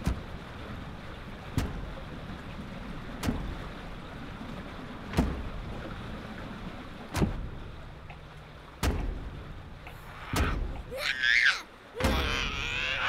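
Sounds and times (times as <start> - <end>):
deep thuds: 1.5 - 2.0, 3.2 - 3.7, 5.1 - 5.9, 7.1 - 7.8, 8.7 - 9.7.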